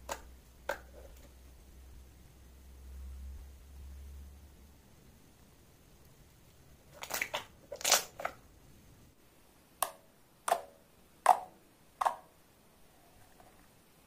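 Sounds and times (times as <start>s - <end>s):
slime squelching: 6.8s - 8.5s.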